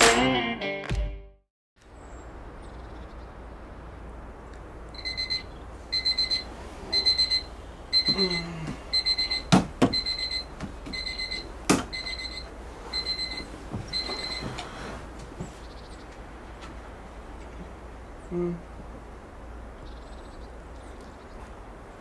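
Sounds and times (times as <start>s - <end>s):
electronic alarm beeping: 5.0s - 14.6s.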